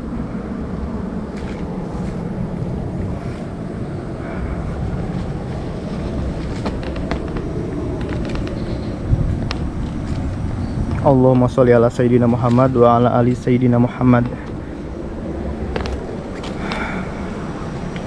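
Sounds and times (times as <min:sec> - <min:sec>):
wind rumble on microphone: 0:00.0 - 0:18.0
light crackles: 0:15.6 - 0:18.0.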